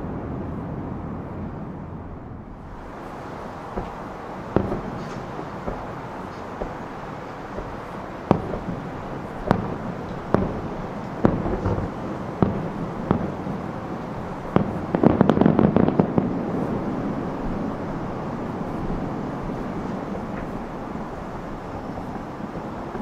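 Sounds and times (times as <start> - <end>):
distant firework booms: 2.1 - 13.7, 14.3 - 17.1
rapid firework pops: 3.0 - 16.8, 18.7 - 20.7, 21.5 - 23.0.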